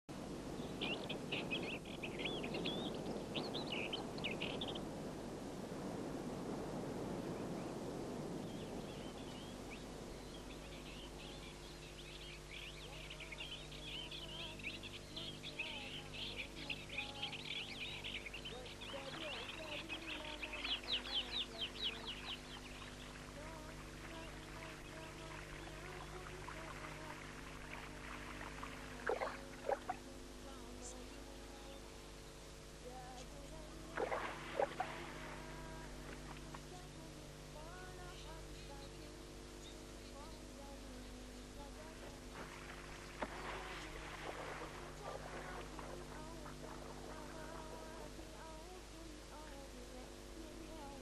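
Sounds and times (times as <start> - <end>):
low background noise: 0.1 - 51.0
small birds chirping: 0.5 - 5.0, 8.4 - 51.0.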